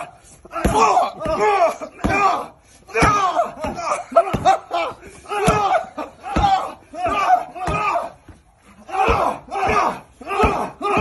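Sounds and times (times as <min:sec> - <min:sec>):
people shouting and yelling: 0:00.0 - 0:11.0
punches thudding into padding: 0:00.0 - 0:11.0.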